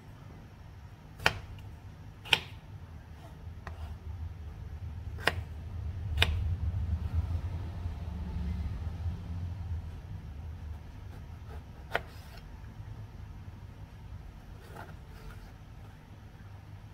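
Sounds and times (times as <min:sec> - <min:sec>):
knife cutting on plastic board: 0:01.2 - 0:04.0, 0:05.1 - 0:05.5, 0:11.0 - 0:12.5, 0:14.6 - 0:15.6
low hum: 0:02.8 - 0:11.8.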